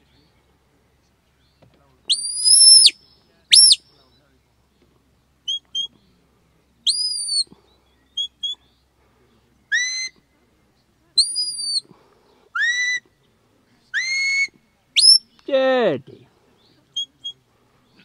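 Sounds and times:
shepherd's sharp high whistles: 2.1s - 3.8s, 6.9s - 7.5s, 9.7s - 10.2s, 11.2s - 11.8s, 12.6s - 13.0s, 14.0s - 15.3s.

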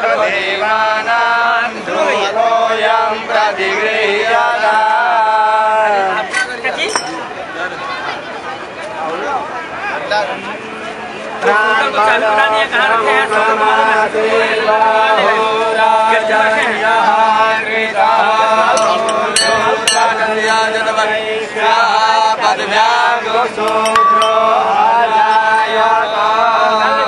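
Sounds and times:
men chanting: 0.0s - 6.2s, 11.4s - 27.0s
sharp metallic clinks: 6.8s - 7.3s, 18.8s - 20.4s, 23.6s - 24.9s
steady low tone: 23.7s - 25.4s.

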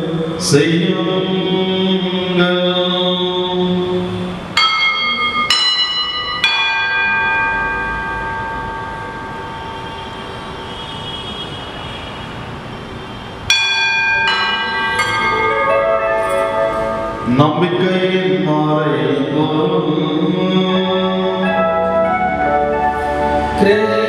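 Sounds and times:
bells ringing: 0.0s - 11.8s, 13.2s - 24.0s.

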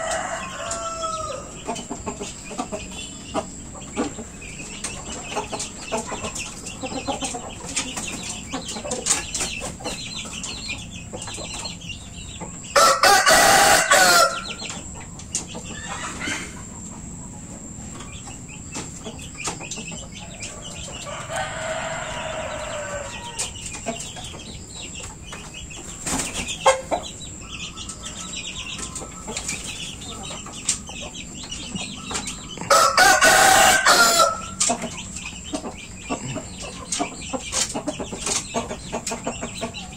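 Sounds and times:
roosters crowing: 0.0s - 6.0s, 12.6s - 14.8s, 15.6s - 17.0s, 20.1s - 25.3s, 26.0s - 37.8s
chickens clucking: 0.0s - 39.9s.

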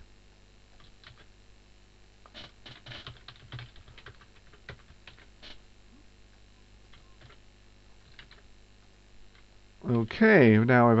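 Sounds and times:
faint keyboard typing: 0.7s - 1.3s, 2.2s - 5.6s, 6.3s - 9.5s.

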